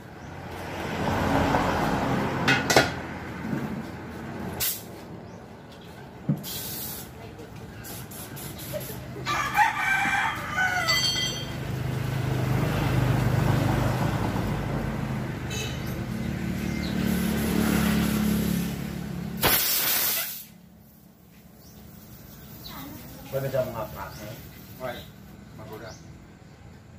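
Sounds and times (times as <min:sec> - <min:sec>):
loud hissing air: 0:06.4 - 0:09.1, 0:19.4 - 0:20.7
rooster crowing: 0:09.2 - 0:11.6.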